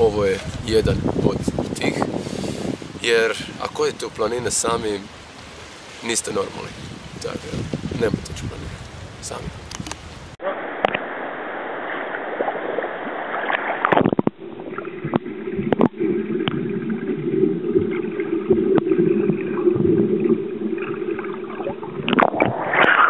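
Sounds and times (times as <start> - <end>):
rushing water: 0.0 - 23.0
muffled underwater rumble: 6.7 - 23.0
underwater clicks and gurgles: 9.6 - 10.0, 11.9 - 23.0
air bubbles: 11.8 - 23.0.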